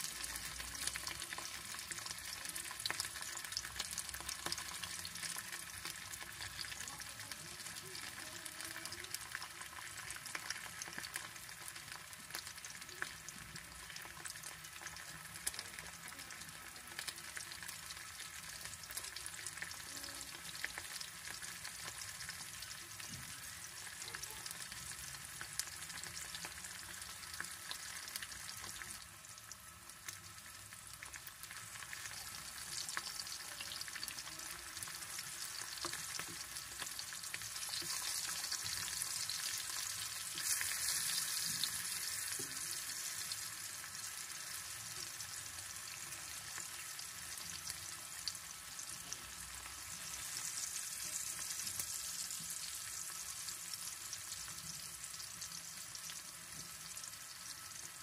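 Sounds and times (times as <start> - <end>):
sausage sizzling in oil: 0.0 - 58.0.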